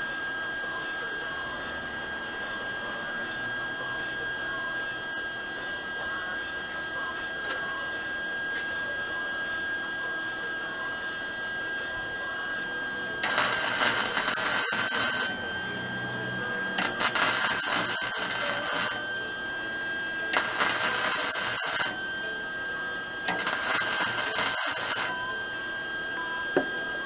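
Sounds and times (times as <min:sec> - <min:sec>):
steady high tone: 0:00.0 - 0:27.0
welder crackling sizzle: 0:13.2 - 0:15.4, 0:16.8 - 0:19.1, 0:20.3 - 0:22.0, 0:23.3 - 0:25.2.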